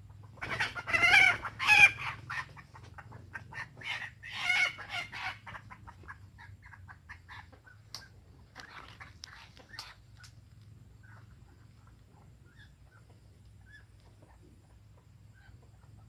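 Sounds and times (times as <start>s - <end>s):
chicken clucking: 0.0s - 16.0s
chicken calling: 0.3s - 10.4s.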